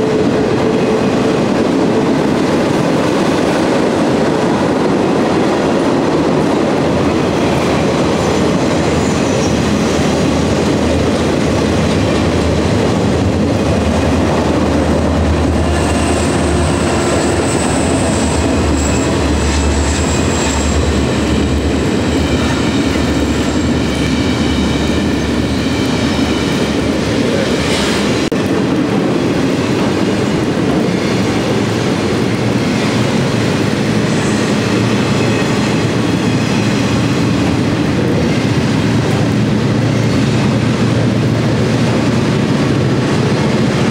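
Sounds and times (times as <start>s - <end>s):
clickety-clack over rail joints: 0.0s - 43.9s
train wheels rumbling on rails: 0.0s - 43.9s
high wheel squeal: 34.0s - 37.1s.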